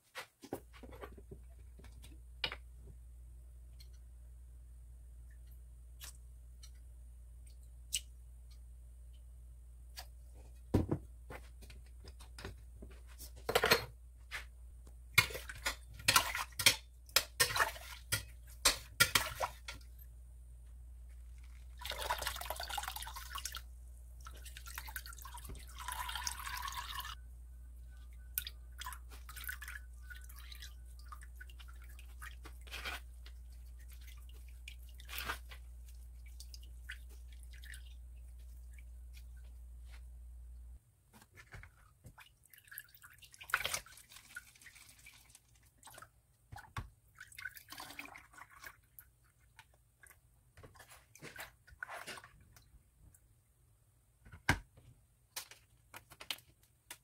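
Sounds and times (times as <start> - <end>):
liquid pouring through strainer: 21.8 - 23.6, 24.3 - 27.2, 42.6 - 46.1
water dripping: 21.8 - 27.2, 28.1 - 32.6, 33.2 - 39.3.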